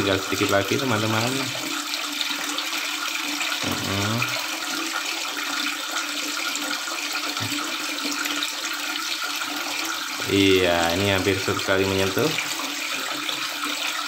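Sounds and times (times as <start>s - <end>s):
water splashing into tank: 0.0s - 14.0s.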